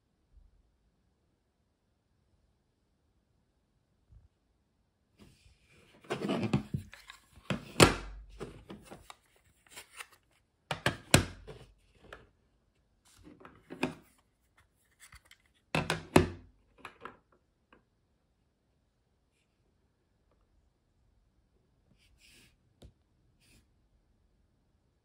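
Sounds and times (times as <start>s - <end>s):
plastic rubbing and sliding: 5.7s - 10.4s.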